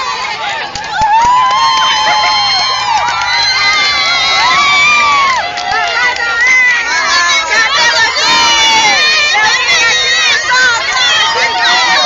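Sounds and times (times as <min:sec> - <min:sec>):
children shouting and screaming: 0:00.0 - 0:12.0.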